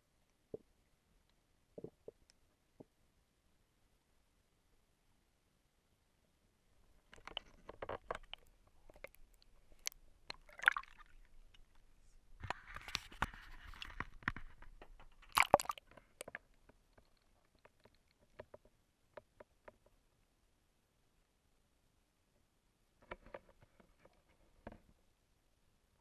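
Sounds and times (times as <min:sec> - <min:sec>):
water splashing and sloshing: 0:07.0 - 0:11.9, 0:15.2 - 0:16.4.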